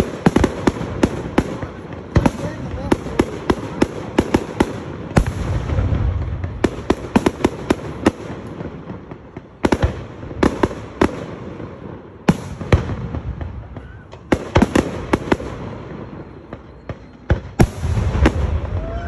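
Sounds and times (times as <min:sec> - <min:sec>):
fireworks cracking and banging: 0:00.0 - 0:19.0.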